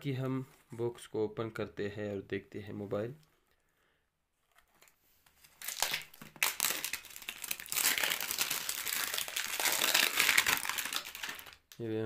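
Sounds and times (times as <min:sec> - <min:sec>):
plastic wrapping crinkling: 0:05.4 - 0:11.8.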